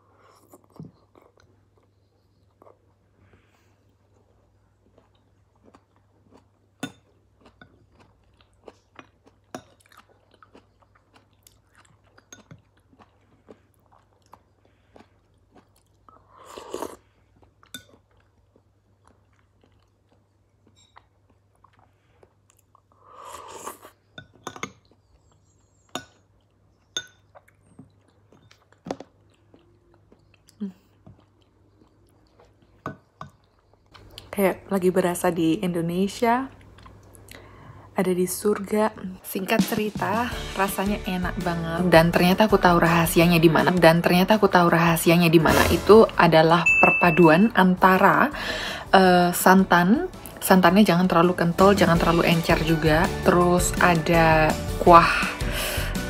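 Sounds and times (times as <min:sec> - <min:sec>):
person chewing and slurping: 0:00.0 - 0:34.3, 0:55.2 - 0:56.0.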